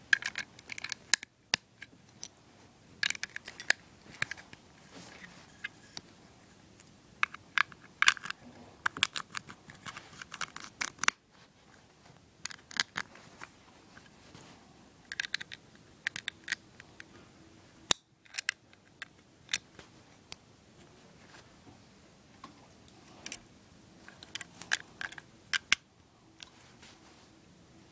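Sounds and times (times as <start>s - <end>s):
plastic bricks clicking: 0.1s - 2.3s, 3.0s - 4.4s, 7.2s - 11.2s, 12.4s - 13.1s, 15.1s - 16.6s.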